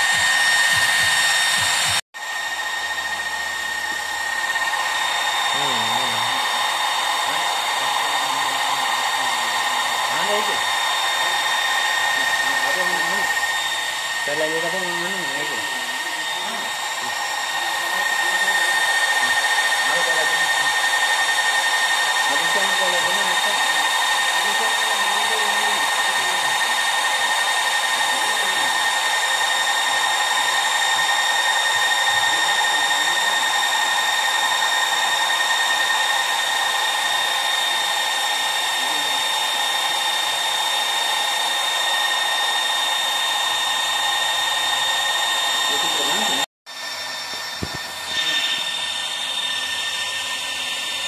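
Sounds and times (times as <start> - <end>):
electric fan whirring: 0.0 - 51.0.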